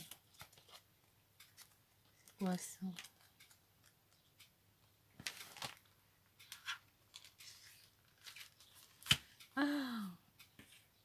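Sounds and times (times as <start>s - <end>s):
plastic cover rustling: 1.6s - 3.5s, 5.2s - 9.4s.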